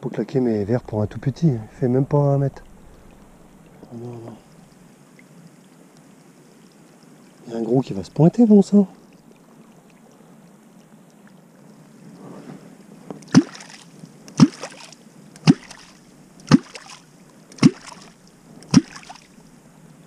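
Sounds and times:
water splash: 0.6s - 4.9s, 13.2s - 19.6s
hollow gulping pop in water: 0.9s - 4.9s, 15.4s - 16.9s, 17.5s - 19.3s.

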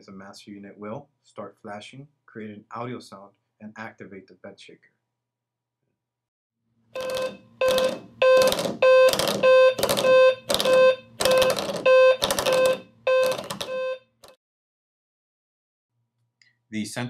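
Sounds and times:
alarm clock beeps: 7.0s - 14.1s.

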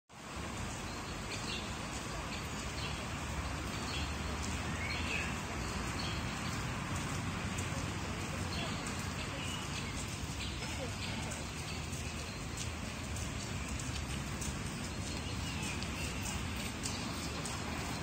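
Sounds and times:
birds chirping: 0.2s - 18.0s.

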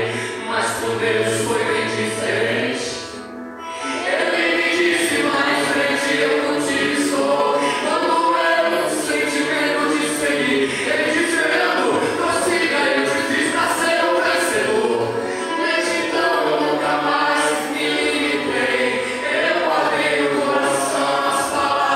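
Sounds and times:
man singing gospel: 0.0s - 3.0s, 7.6s - 16.4s.

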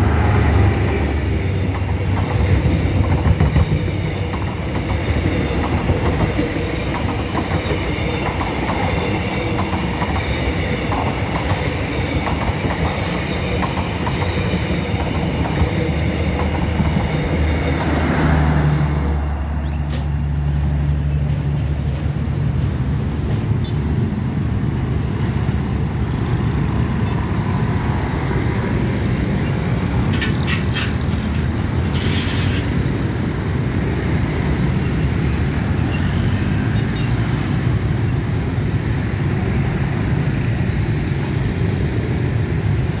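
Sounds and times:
motorbike traffic rumble: 14.8s - 43.0s.

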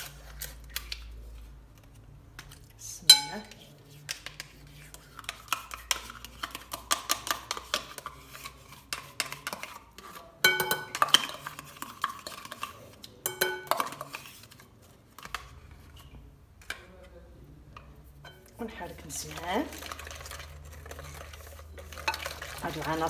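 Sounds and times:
spoon scraping yogurt pot: 0.0s - 23.0s
spoon knocking glass bowl: 3.1s - 3.6s, 10.5s - 11.3s, 13.3s - 14.0s.

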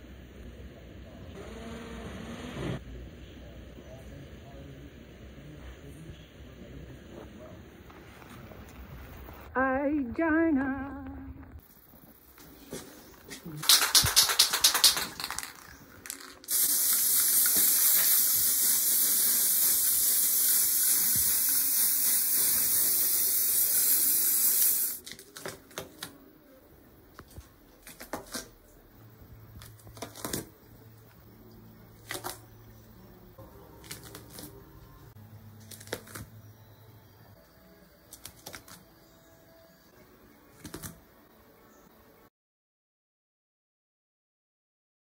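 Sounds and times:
spray can hissing: 13.6s - 25.1s.

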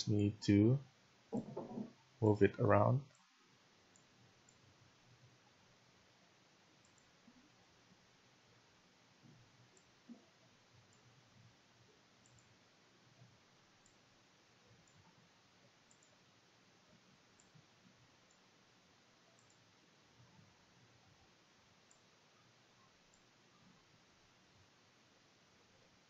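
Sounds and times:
low hiss: 0.0s - 26.0s
computer mouse clicks: 6.8s - 7.1s, 12.2s - 12.5s, 15.9s - 16.2s, 19.4s - 19.6s.

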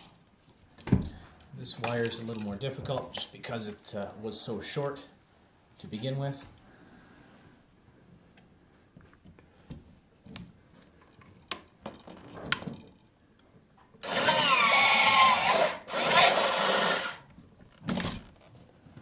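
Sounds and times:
crimping tool running with whine: 14.0s - 17.3s.

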